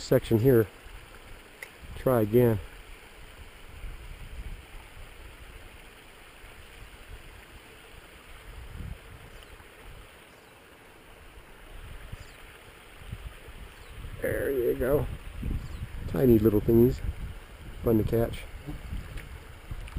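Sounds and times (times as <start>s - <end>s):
mountain creek running: 0.0s - 19.9s
wind buffeting microphone: 1.8s - 5.7s, 8.4s - 10.1s, 11.6s - 19.9s.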